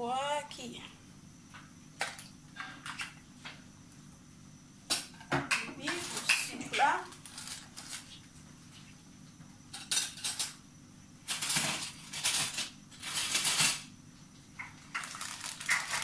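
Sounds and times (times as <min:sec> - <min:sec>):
kitchen items clinking and rattling: 0:05.3 - 0:08.0, 0:09.8 - 0:10.6, 0:11.3 - 0:13.9, 0:14.6 - 0:16.0.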